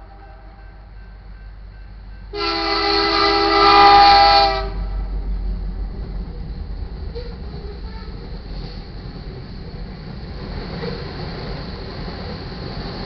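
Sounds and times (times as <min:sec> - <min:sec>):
train cars rumbling past: 0:00.0 - 0:13.0
locomotive air horn blast: 0:02.3 - 0:05.1, 0:07.2 - 0:08.2.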